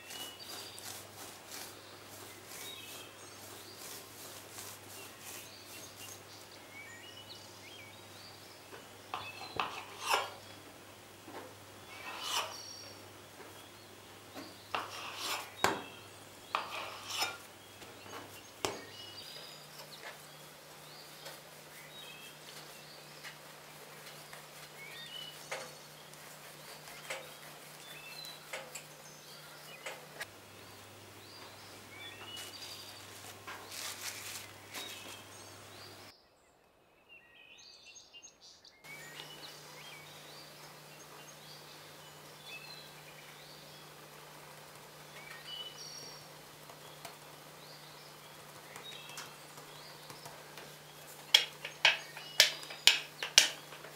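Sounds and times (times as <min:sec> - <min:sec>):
handling dough pieces: 0:00.0 - 0:06.7, 0:32.1 - 0:36.1
knife cutting dough: 0:12.0 - 0:12.6, 0:16.5 - 0:17.4.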